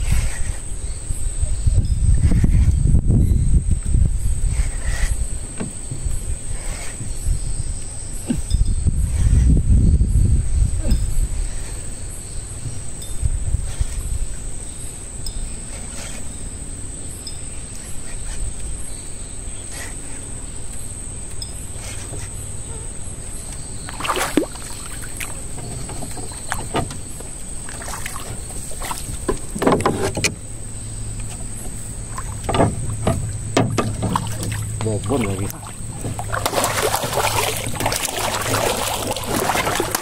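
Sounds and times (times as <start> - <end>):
steady low hum: 0.0 - 40.0
water sloshing at hull: 3.6 - 9.5, 10.5 - 40.0.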